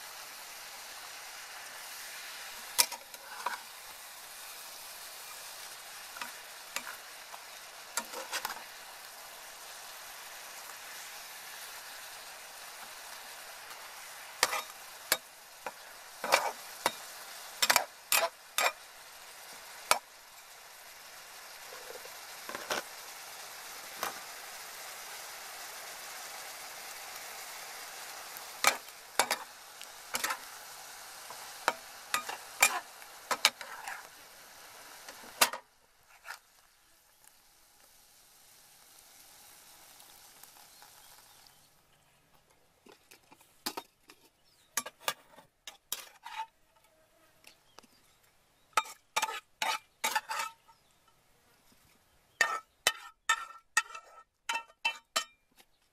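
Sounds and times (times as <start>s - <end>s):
food sizzling in a frying pan: 0.0s - 42.0s, 44.4s - 46.6s, 47.4s - 55.4s
metal spatula clacking on pan: 52.4s - 55.4s.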